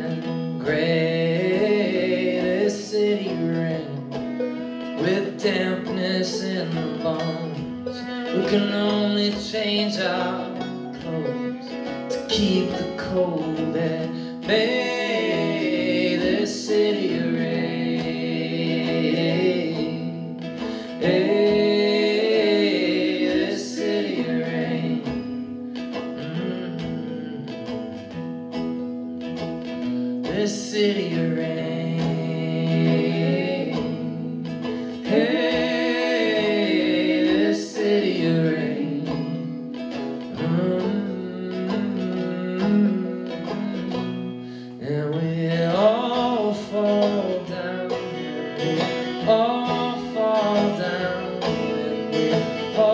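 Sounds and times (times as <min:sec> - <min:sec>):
people singing: 0:00.0 - 0:04.2, 0:12.1 - 0:25.5, 0:30.3 - 0:39.7, 0:40.3 - 0:52.9
banjo: 0:00.0 - 0:52.9
fiddle: 0:00.0 - 0:52.9
strummed acoustic guitar: 0:00.0 - 0:52.9.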